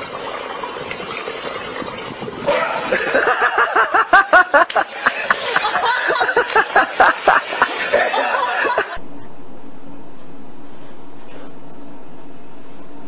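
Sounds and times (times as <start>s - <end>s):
splash in pool water: 0.0s - 9.0s
people laughing: 2.8s - 9.0s.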